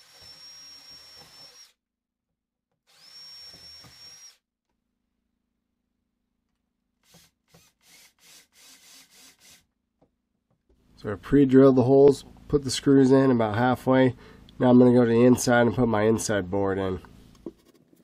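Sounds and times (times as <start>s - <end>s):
cordless drill whining: 0.0s - 1.8s, 2.8s - 4.4s, 7.0s - 9.6s.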